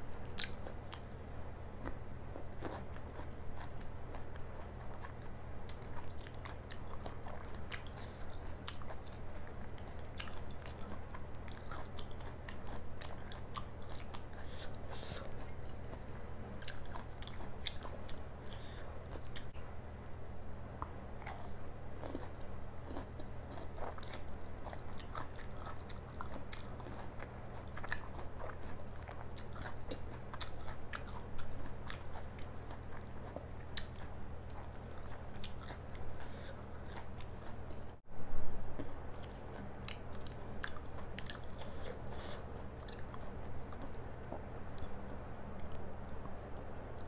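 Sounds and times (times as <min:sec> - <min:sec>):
person chewing food: 0:00.1 - 0:19.7, 0:20.6 - 0:38.0, 0:38.7 - 0:47.0
low hum: 0:33.2 - 0:47.0.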